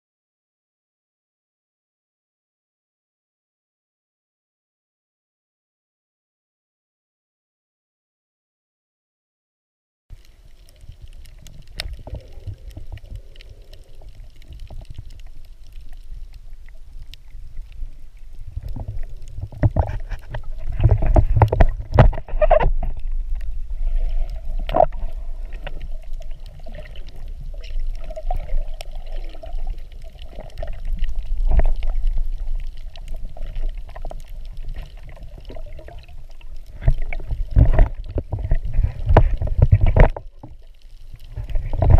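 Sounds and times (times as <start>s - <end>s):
underwater rumble of moving water: 10.1s - 41.9s
underwater knocks and thumps: 18.4s - 41.9s.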